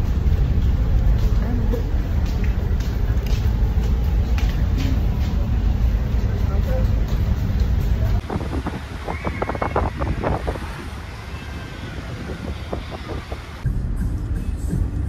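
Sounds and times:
low rumble inside ferry: 0:00.0 - 0:15.0
wind buffeting microphone: 0:08.0 - 0:13.6
sea water washing along hull: 0:08.2 - 0:13.6.

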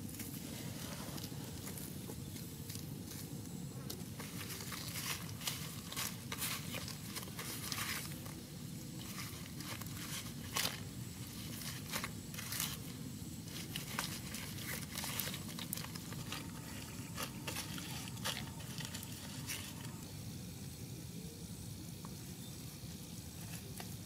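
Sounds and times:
wet squishing of kneading: 0:09.0 - 0:20.0.

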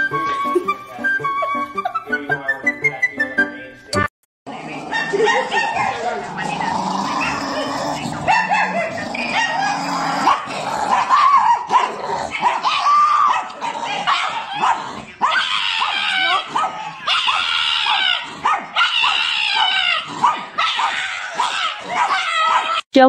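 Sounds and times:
dog barking and yipping: 0:04.9 - 0:22.8.

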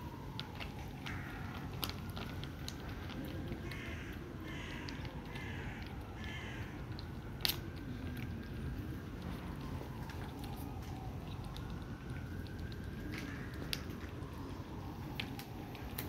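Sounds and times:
cats chewing and licking: 0:00.0 - 0:16.0.

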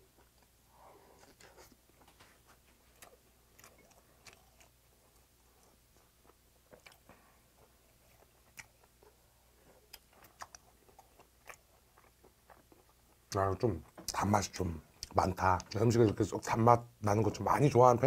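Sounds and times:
faint chewing: 0:00.0 - 0:14.2.

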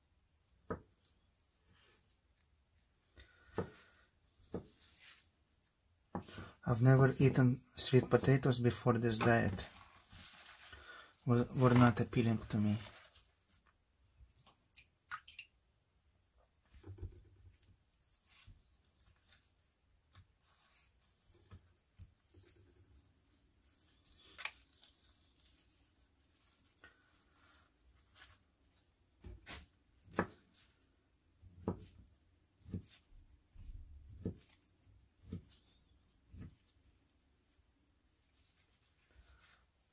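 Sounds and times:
paper napkin rustling: 0:07.9 - 0:13.7.

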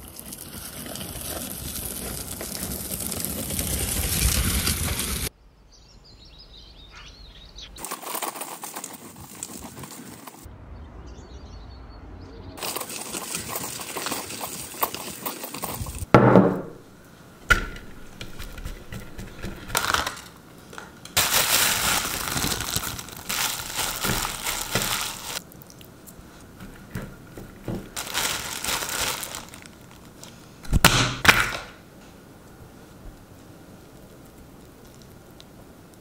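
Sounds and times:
rustling: 0:00.0 - 0:05.3, 0:07.8 - 0:10.5, 0:17.2 - 0:30.8
knocks on wooden bowl: 0:16.2 - 0:16.8
plastic glove crinkling: 0:18.0 - 0:30.8.

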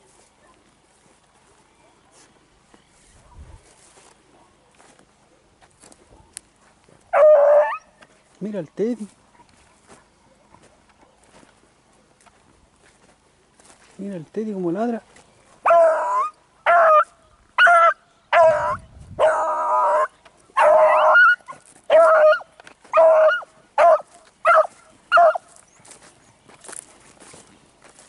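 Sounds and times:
dog barking and baying: 0:07.1 - 0:07.9, 0:15.6 - 0:25.6.

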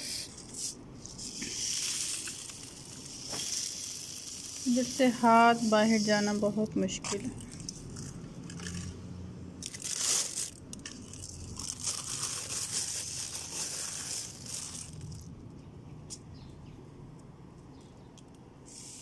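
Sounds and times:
plastic bag crinkling: 0:00.0 - 0:15.6
seed clicks: 0:17.0 - 0:18.6.

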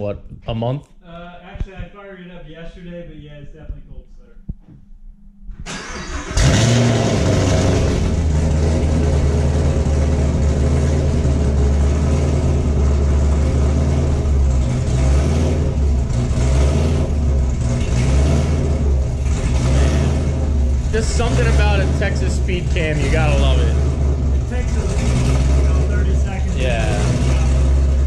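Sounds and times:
car engine idling loud: 0:05.7 - 0:28.0.

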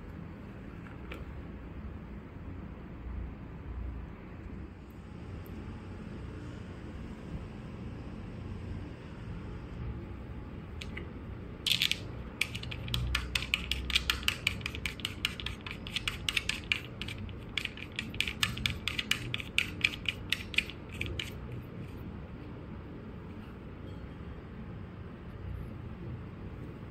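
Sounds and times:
screw clicking and creaking in plastic: 0:11.7 - 0:21.5.

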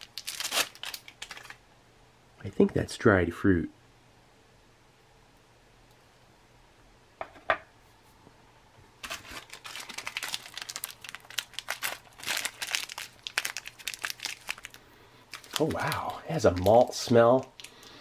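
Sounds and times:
plastic wrapper crinkling and tearing: 0:00.0 - 0:01.6, 0:09.0 - 0:18.0.

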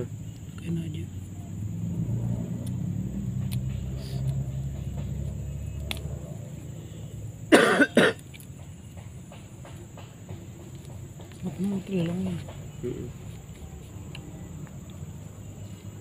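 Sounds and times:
low steady rumble: 0:00.0 - 0:07.5
person coughing: 0:07.5 - 0:08.2.

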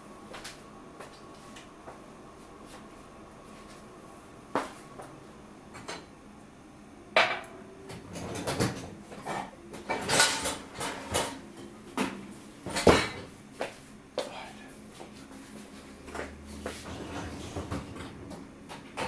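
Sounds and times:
dishes and utensils clinking: 0:08.1 - 0:11.7.

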